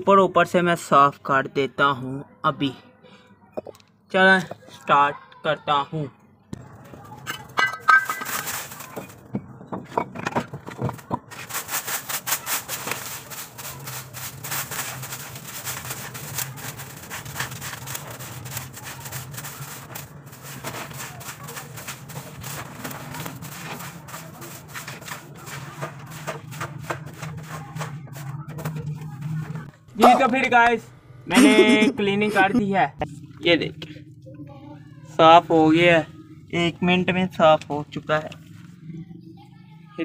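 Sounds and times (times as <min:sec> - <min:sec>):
broom sweeping dirt floor: 0:07.8 - 0:09.1, 0:11.3 - 0:29.7
steady low hum: 0:13.2 - 0:40.0.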